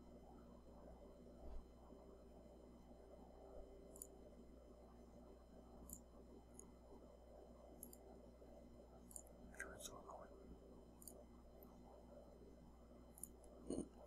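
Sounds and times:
computer mouse clicks: 3.9s - 4.2s, 5.8s - 6.8s, 7.8s - 8.1s, 9.0s - 9.7s, 11.0s - 11.8s, 13.1s - 13.9s.

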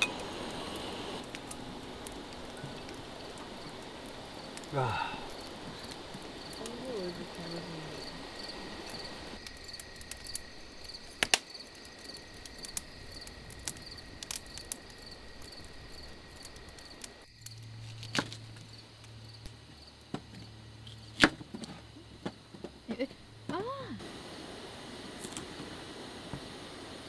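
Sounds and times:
low steady hum: 0.0s - 10.9s
crickets chirping: 0.0s - 27.0s
wood fire crackling: 0.0s - 27.0s.

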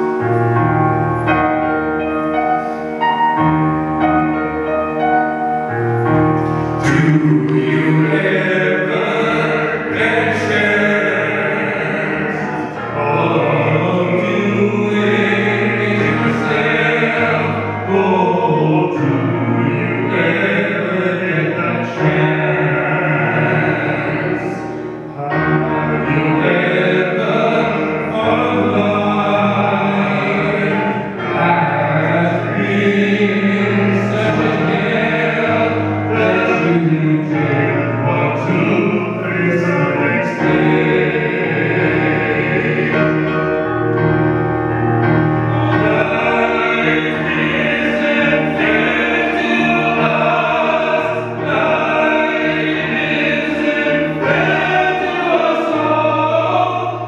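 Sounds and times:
vocal trio singing in harmony: 0.0s - 57.0s.

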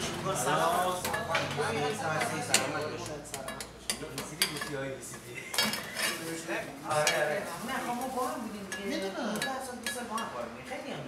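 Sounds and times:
metal kitchenware clinking: 1.0s - 7.4s, 8.6s - 10.4s.

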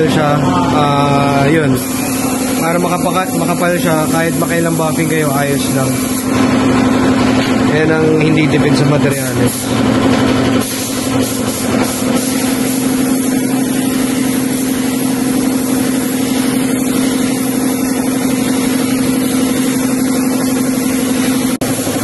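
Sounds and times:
droning machine hum: 0.0s - 22.0s
spray gun hissing: 1.7s - 7.4s, 9.1s - 22.0s.

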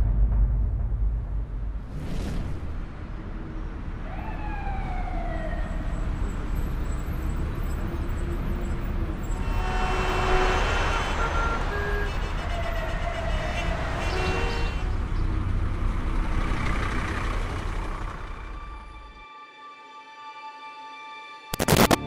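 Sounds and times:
road traffic rumbling: 2.8s - 19.2s
siren wailing: 4.0s - 6.9s.

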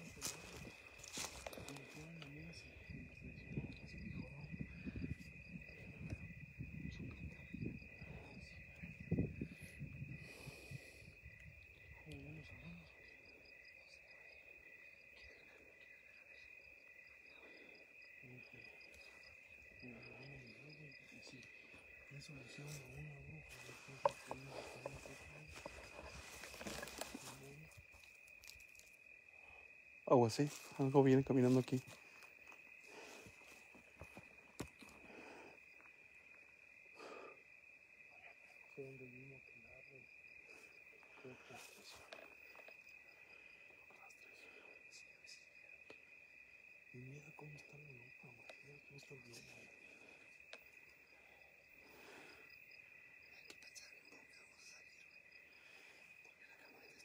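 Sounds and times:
rustles in undergrowth: 0.0s - 2.2s, 22.2s - 29.1s
crickets chirping: 0.0s - 57.0s.

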